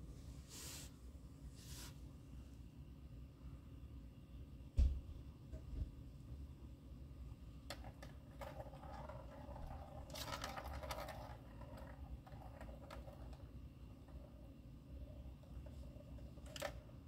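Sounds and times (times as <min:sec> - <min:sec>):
plastic balls rattling in toy: 0:07.7 - 0:13.5.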